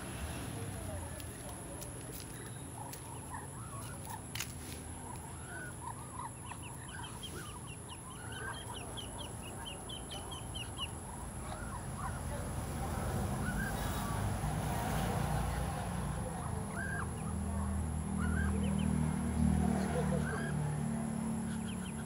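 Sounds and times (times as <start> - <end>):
ducks clucking softly: 1.8 - 22.0
duckling peeping: 4.9 - 12.4, 13.3 - 14.3, 16.7 - 19.0, 20.1 - 22.0.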